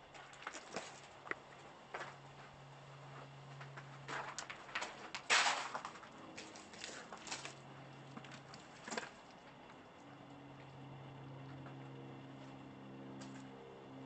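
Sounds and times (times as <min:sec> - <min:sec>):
footsteps crunching on rubble: 0:00.1 - 0:09.8.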